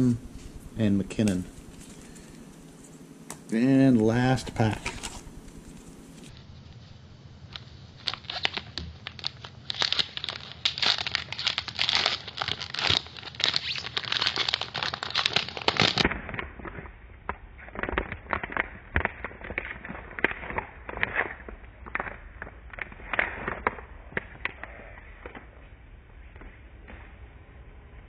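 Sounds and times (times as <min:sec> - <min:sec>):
foil wrapper tearing and crinkling: 0:04.1 - 0:06.3, 0:07.5 - 0:25.5.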